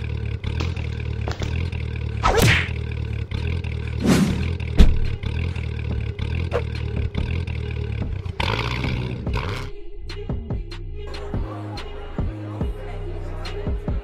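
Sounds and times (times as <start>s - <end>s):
van engine idling: 0.0s - 13.9s
heavy thump: 4.1s - 5.2s.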